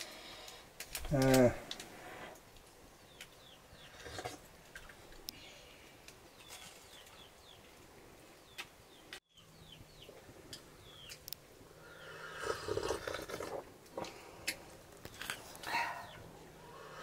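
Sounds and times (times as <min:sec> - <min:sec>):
small birds chirping: 0:00.4 - 0:12.5, 0:14.0 - 0:17.0
slurping from metal cups: 0:03.8 - 0:04.5, 0:12.2 - 0:14.2.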